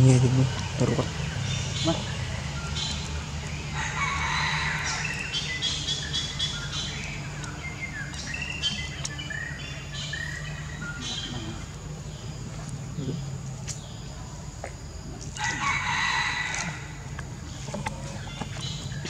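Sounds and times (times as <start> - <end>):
steady low hum: 0.0 - 19.0
bird chirps and calls: 4.8 - 11.7.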